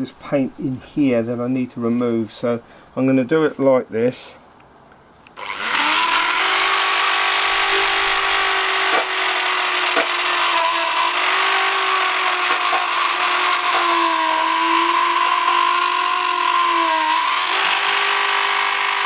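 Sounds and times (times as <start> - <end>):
rotary tool motor whine: 5.4 - 19.0.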